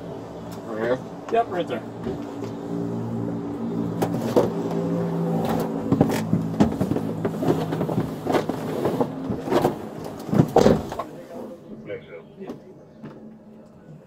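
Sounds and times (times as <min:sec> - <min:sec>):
car engine hum: 0:00.0 - 0:14.0
bumps and scrapes on plastic seat: 0:04.0 - 0:11.1.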